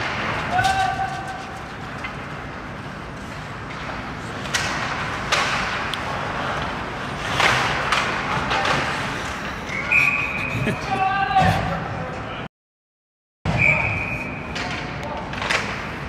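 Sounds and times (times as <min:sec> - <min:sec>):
hockey sticks knocking puck: 0:03.6 - 0:09.2.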